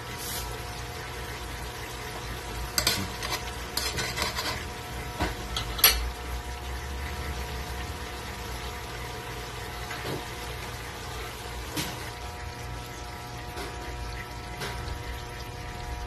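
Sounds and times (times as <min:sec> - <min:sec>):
sauce bubbling and sizzling: 0:00.0 - 0:16.0
metal spoon scraping wok: 0:02.7 - 0:04.8, 0:05.5 - 0:06.0.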